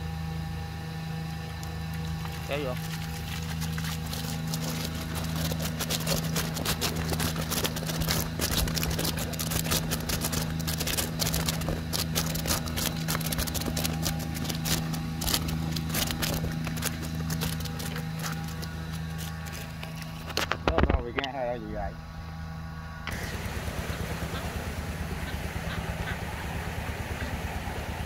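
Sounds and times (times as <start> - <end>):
low machine hum: 0.0 - 28.0
irregular clicking and crackling: 1.6 - 21.4.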